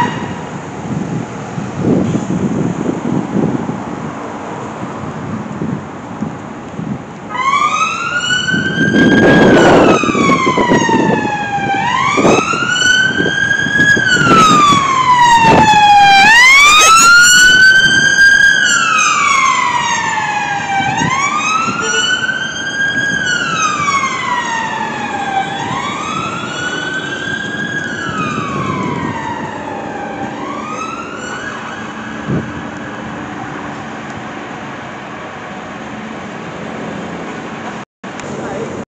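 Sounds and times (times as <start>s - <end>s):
low traffic rumble: 0.0s - 38.8s
second siren: 7.3s - 34.2s
police siren wailing: 7.3s - 34.7s.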